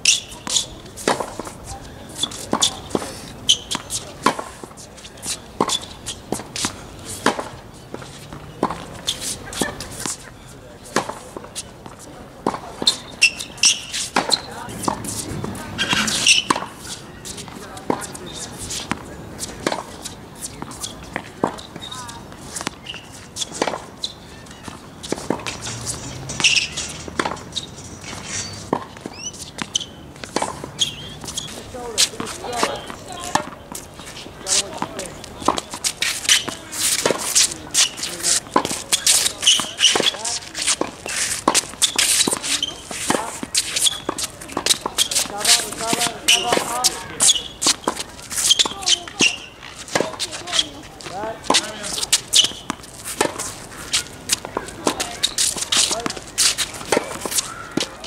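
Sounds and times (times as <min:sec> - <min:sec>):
racquet striking tennis ball: 0:00.0 - 0:01.6, 0:02.2 - 0:10.2, 0:10.9 - 0:11.5, 0:12.4 - 0:58.0
shoe squeaks: 0:00.0 - 0:12.0, 0:12.8 - 0:58.0
shuffling footsteps: 0:00.2 - 0:58.0.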